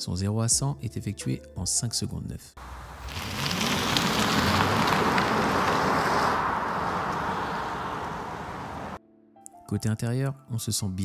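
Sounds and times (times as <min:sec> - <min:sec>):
tyre and wind noise: 0:02.6 - 0:09.0.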